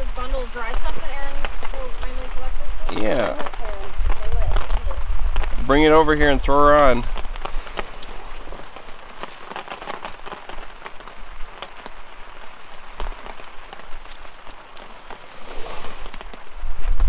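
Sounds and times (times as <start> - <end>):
light rain pattering: 0.0 - 17.0
tinder crackling: 0.0 - 17.0
twigs being handled: 12.8 - 16.5.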